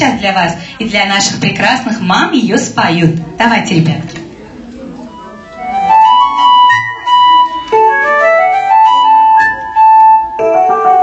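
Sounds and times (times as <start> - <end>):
keyboard playing held notes: 5.0 - 11.0.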